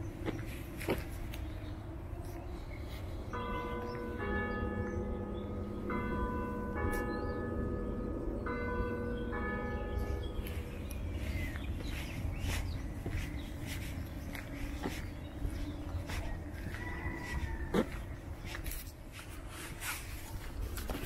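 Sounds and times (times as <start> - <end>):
steady low rumble: 0.0 - 21.0
two bells ringing: 3.3 - 11.9.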